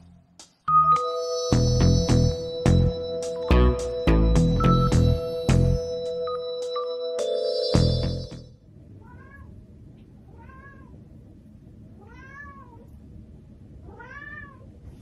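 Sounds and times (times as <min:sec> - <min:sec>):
cat meowing: 0:09.0 - 0:09.5, 0:10.3 - 0:11.0, 0:12.0 - 0:12.9, 0:13.8 - 0:14.7.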